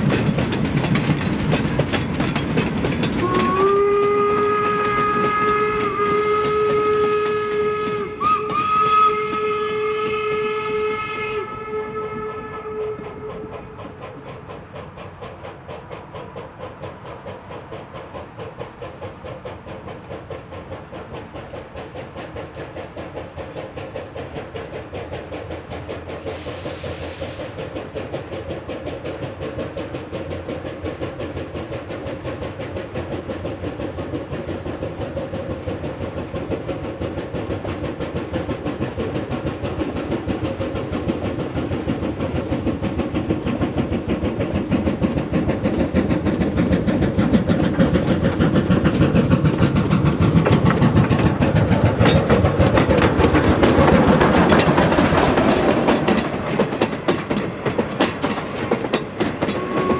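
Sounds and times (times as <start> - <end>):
steam hissing: 0.0 - 59.9
steam locomotive exhaust chuffing: 0.0 - 59.9.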